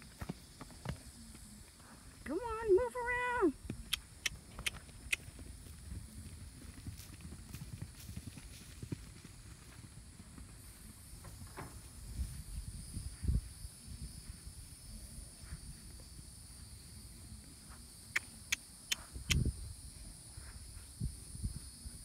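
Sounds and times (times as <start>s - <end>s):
sharp clicks: 3.8s - 5.3s.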